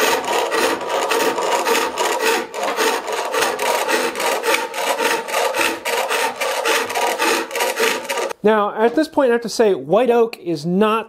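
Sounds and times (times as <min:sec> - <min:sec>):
scraper rasping on turning wood: 0:00.0 - 0:08.4.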